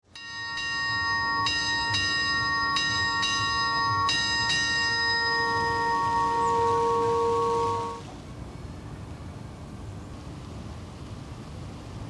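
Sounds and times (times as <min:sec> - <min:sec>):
bell strikes ringing: 0:00.1 - 0:08.0
low lingering hum: 0:00.1 - 0:11.2.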